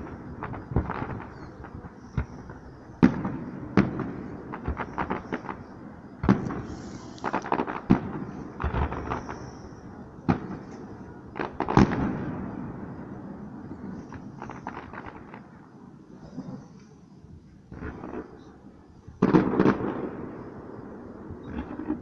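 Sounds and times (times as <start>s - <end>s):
firework shells bursting: 0.0s - 12.4s.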